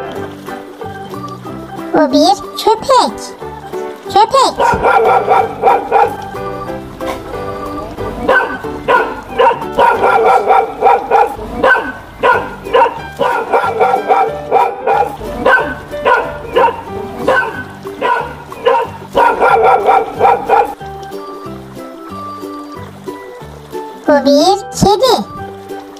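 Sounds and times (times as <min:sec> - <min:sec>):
light background music: 0:00.0 - 0:25.9
dog barking: 0:04.5 - 0:06.2, 0:08.2 - 0:20.8.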